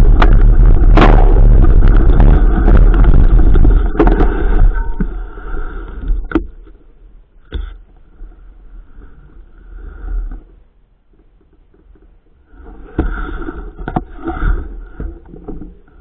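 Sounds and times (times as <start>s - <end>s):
wind buffeting microphone: 0.0s - 5.1s
bike rattling over rough ground: 0.0s - 5.2s.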